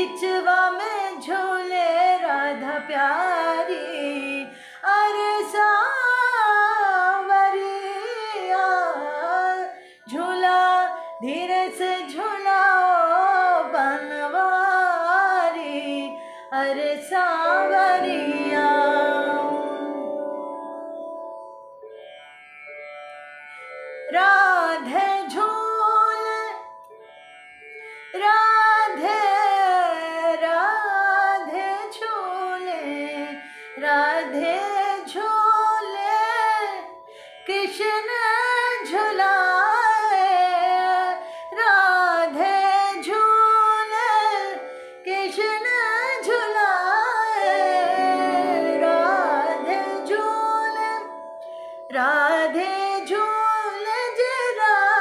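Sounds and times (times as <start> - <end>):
woman singing ornamented phrases: 0.0 - 21.4, 24.1 - 26.8, 28.2 - 55.0.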